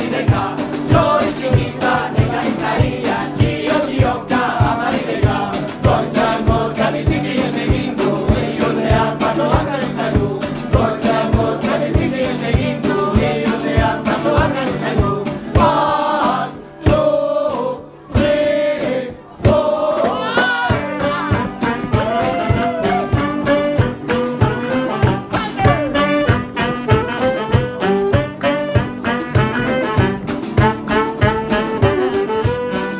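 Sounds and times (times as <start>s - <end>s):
steady beat: 0.0s - 17.6s, 18.2s - 32.8s
plucked stringed instrument: 18.2s - 32.9s
saxophone: 19.6s - 32.9s
woman singing: 25.0s - 26.2s.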